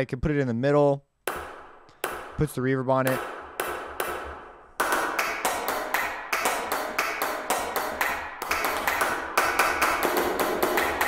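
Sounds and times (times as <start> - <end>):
hand claps with reverb: 5.2 - 11.0.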